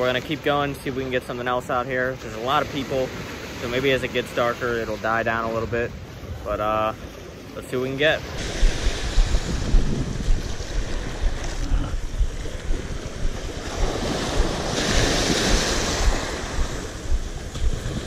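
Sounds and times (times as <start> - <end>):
small waves washing on concrete: 0.0 - 6.2, 7.0 - 18.0
wind buffeting microphone: 8.2 - 18.0.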